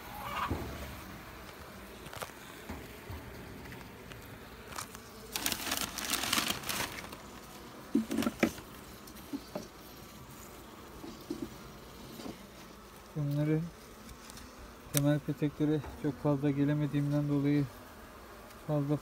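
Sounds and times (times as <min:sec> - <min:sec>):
honeybees buzzing: 0:00.0 - 0:19.0
plastic sheet crinkling: 0:04.7 - 0:08.6.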